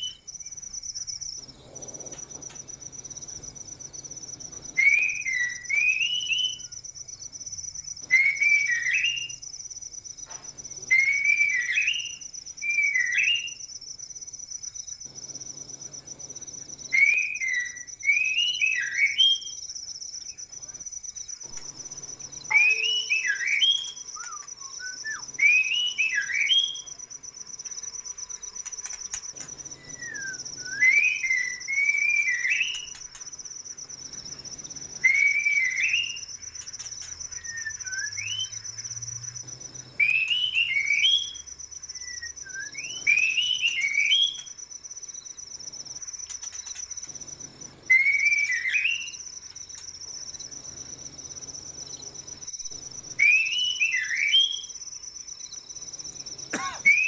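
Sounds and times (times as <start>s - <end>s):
crickets trilling: 0.0s - 57.0s
birds whistling swooping phrases: 4.1s - 6.8s, 8.0s - 9.4s, 10.9s - 13.7s, 16.8s - 19.6s, 21.6s - 27.0s, 28.6s - 33.3s, 34.9s - 39.0s, 40.0s - 44.6s, 47.8s - 49.3s, 53.1s - 54.8s.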